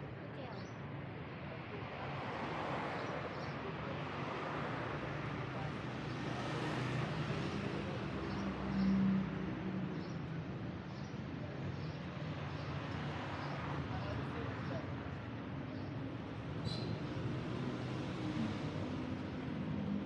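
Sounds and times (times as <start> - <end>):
street traffic: 0.0 - 20.0
passing vehicle engine hum: 16.6 - 20.0.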